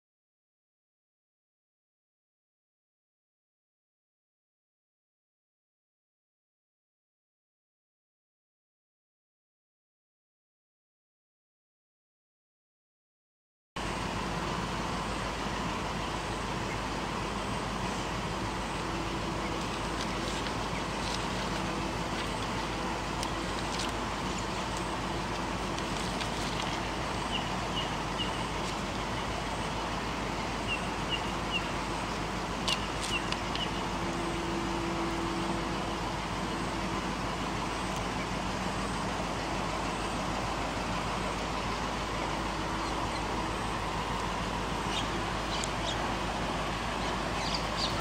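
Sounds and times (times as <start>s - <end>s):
distant road traffic hum: 13.8s - 48.0s
faint high bird chirps: 27.1s - 29.7s, 30.3s - 31.8s, 47.0s - 48.0s.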